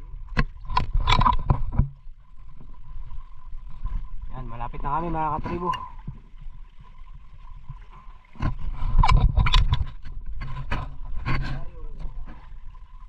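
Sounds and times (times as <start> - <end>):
water rushing: 0.0 - 13.0
wind noise: 7.1 - 12.7.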